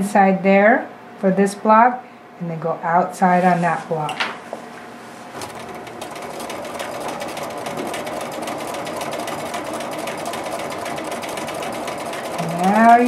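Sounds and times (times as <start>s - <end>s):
sewing machine running: 5.4s - 13.0s.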